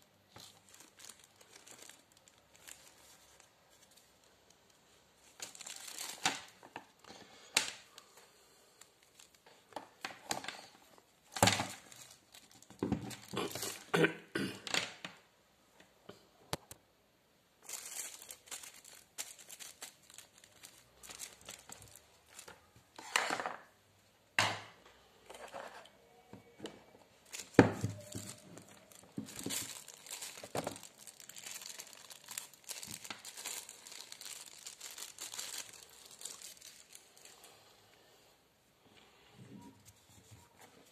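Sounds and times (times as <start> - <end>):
plastic bag crinkling: 0.0 - 14.0, 17.6 - 23.8, 27.1 - 37.5.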